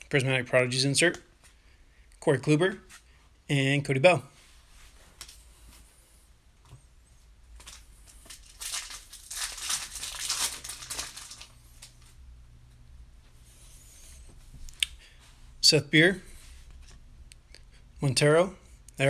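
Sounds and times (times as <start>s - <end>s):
foil wrapper crinkling and tearing: 7.6s - 12.1s.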